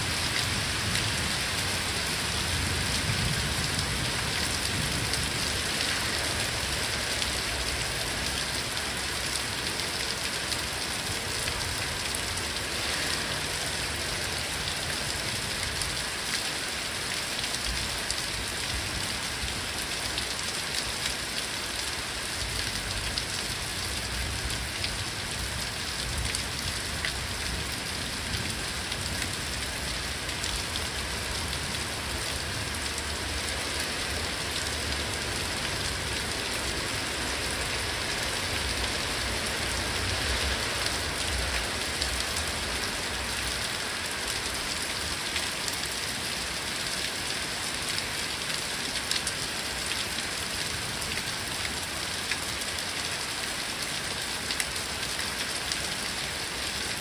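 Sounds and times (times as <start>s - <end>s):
rain pattering on leaves: 0.0s - 57.0s.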